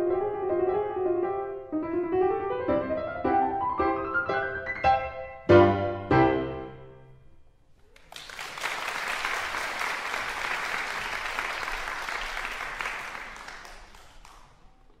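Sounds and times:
audience applause: 7.9s - 14.8s.

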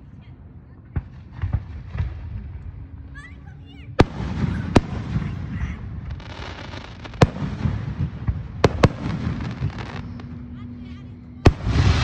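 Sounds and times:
crackling rumble: 4.0s - 10.8s.

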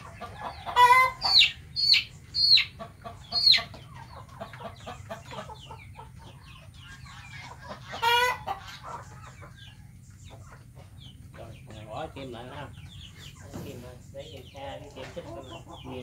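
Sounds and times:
chicken squawk: 0.0s - 10.8s
chicken clucking: 0.0s - 16.0s
chicken peeps: 0.0s - 16.0s.

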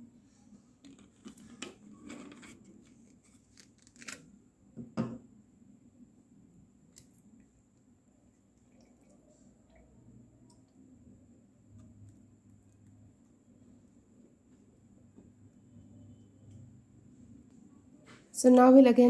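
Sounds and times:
plastic bottle knocking on table: 4.8s - 5.2s.

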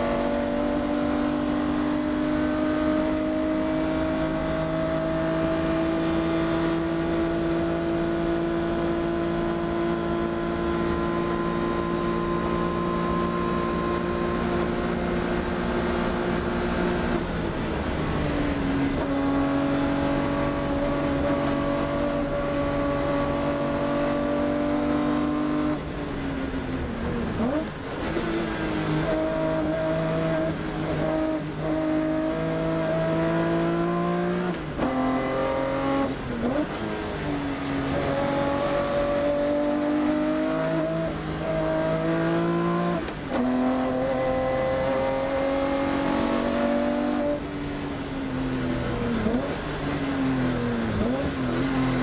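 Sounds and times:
race car engine under hard throttle: 0.0s - 52.0s.

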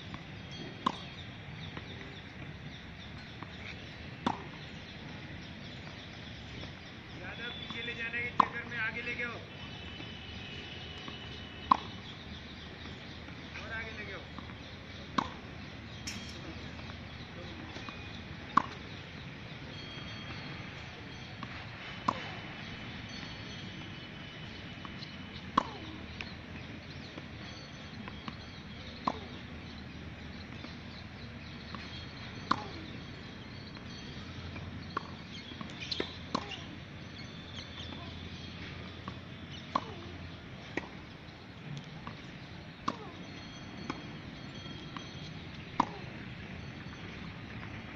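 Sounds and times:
ball bouncing: 31.7s - 32.8s, 39.1s - 40.1s
tennis racket hitting ball: 35.9s - 36.6s, 39.5s - 40.1s.

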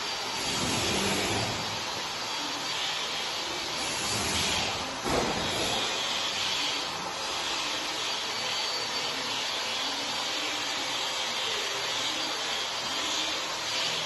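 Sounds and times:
electric linear actuator running: 0.0s - 14.0s.

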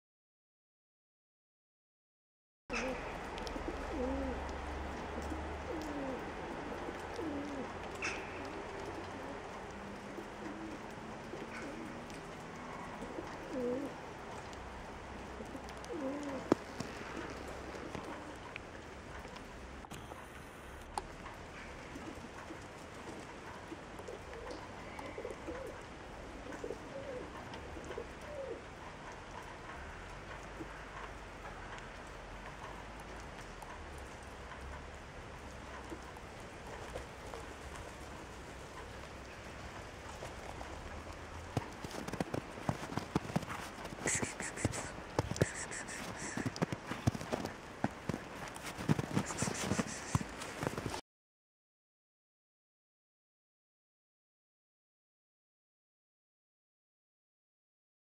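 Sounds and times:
bird cooing: 2.7s - 14.1s, 15.1s - 18.6s, 21.5s - 28.7s, 36.7s - 50.9s.

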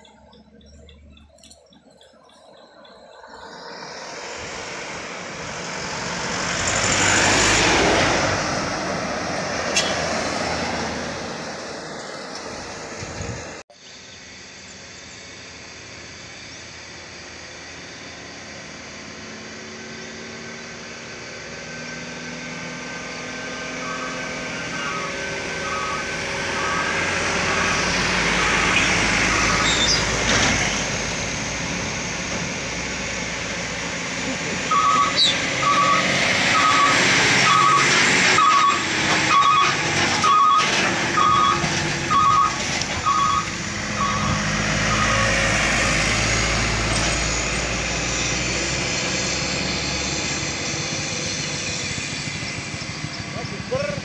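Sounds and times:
diesel truck engine labouring: 0.0s - 13.7s, 15.8s - 54.0s
electronic warning beeps: 23.9s - 27.8s, 34.7s - 45.3s.

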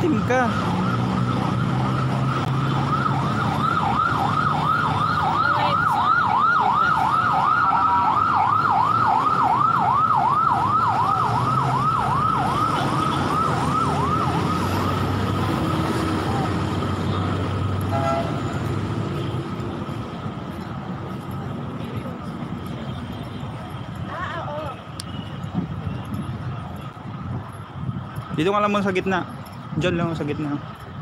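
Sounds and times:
siren yelping: 0.0s - 17.4s
street traffic rumble: 0.0s - 31.0s.

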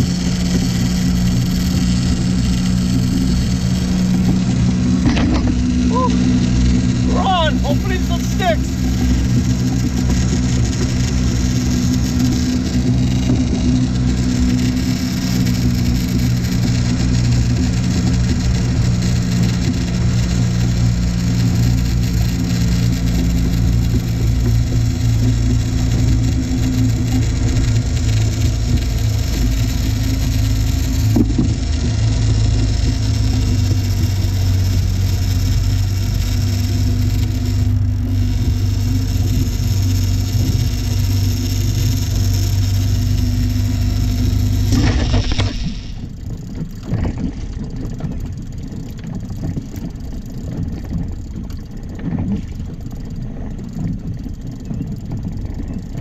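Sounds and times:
outboard motor humming: 0.0s - 56.0s
wind: 0.0s - 56.0s
water rushing: 0.1s - 38.0s.

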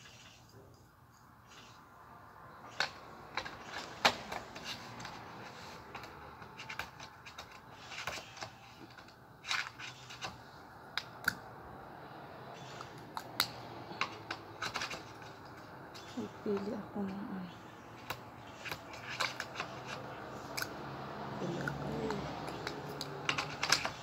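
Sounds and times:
plastic makeup items clicking: 12.7s - 16.2s, 18.0s - 20.8s, 21.6s - 24.0s.

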